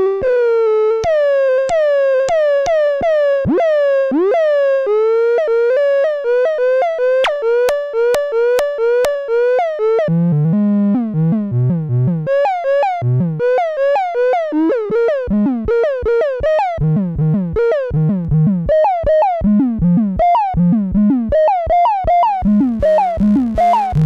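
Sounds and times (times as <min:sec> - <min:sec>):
buzzy synthesizer sequence: 0:07.1 - 0:24.0
synthesizer bass line: 0:07.1 - 0:24.0
sharp clicks: 0:07.2 - 0:09.2.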